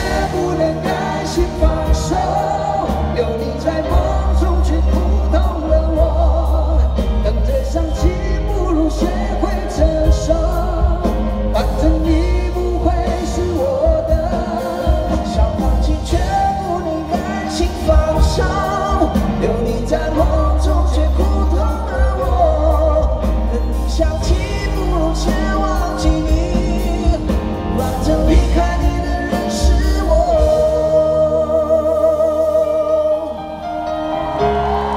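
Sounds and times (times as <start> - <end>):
live pop-rock band playing ballad: 0.0 - 34.9
man singing: 0.0 - 34.9.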